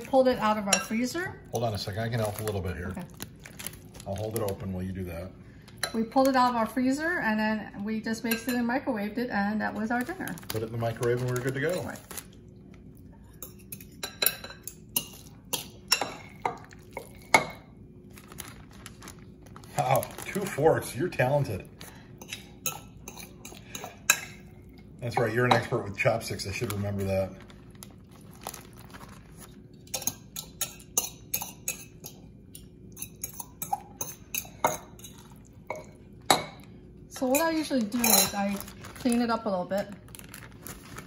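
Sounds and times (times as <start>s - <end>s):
forks clinking against glass bowl: 13.3s - 17.6s, 22.2s - 24.4s, 29.9s - 32.2s, 32.9s - 36.6s, 37.3s - 38.6s
forks clinking on glass bowl: 29.9s - 32.2s, 37.3s - 38.7s.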